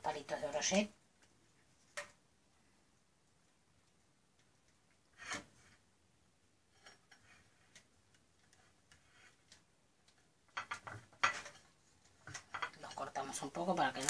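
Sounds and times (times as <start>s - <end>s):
skewers clicking on ceramic plate: 6.8s - 12.8s.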